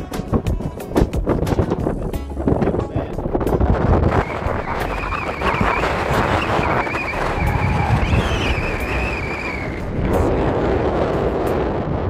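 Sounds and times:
wind buffeting microphone: 0:00.0 - 0:12.0
high wavering whistle: 0:04.1 - 0:09.9.

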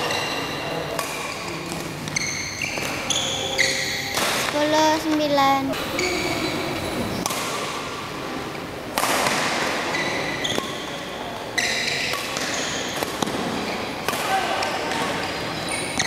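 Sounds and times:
shoes squeaking on court: 0:00.0 - 0:07.2, 0:09.8 - 0:13.0, 0:14.9 - 0:16.0
racket striking shuttlecock: 0:08.9 - 0:09.8, 0:12.1 - 0:15.1.

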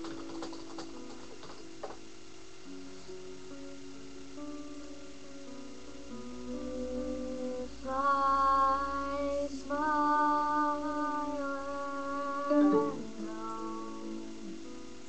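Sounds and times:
girl singing: 0:06.5 - 0:14.5.

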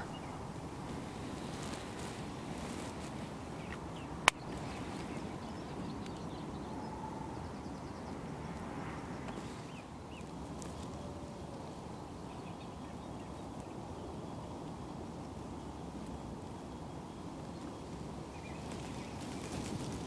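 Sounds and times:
faint short bird calls: 0:00.0 - 0:00.5
outdoor background noise: 0:00.0 - 0:20.0
sharp crack: 0:04.2 - 0:04.5.

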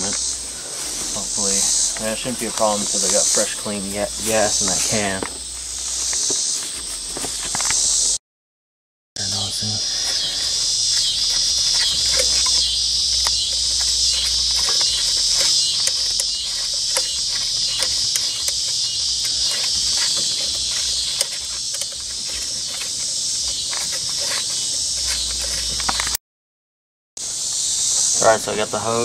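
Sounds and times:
insects chorus droning: 0:00.0 - 0:08.2, 0:09.2 - 0:26.2, 0:27.2 - 0:29.0
ratchet clicking: 0:10.1 - 0:26.2.

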